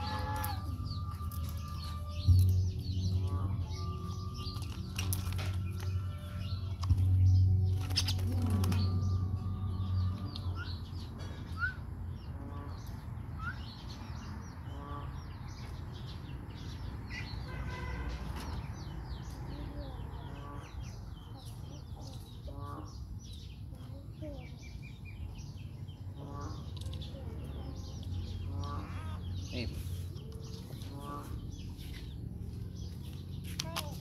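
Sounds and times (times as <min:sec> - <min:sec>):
birds chirping and calling: 0:00.0 - 0:34.0
wings flapping against cage: 0:07.7 - 0:09.0.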